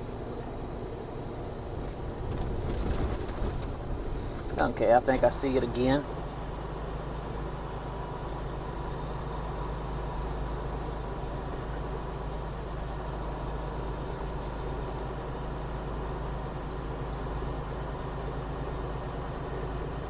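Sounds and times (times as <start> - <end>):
diesel truck engine running: 0.0 - 20.0
tyre and road noise: 0.2 - 7.8.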